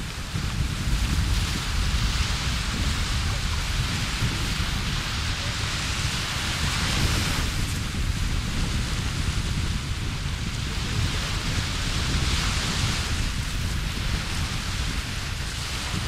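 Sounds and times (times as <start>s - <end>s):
small waves washing onto sand: 0.0s - 16.0s
wind buffeting microphone: 0.0s - 16.0s.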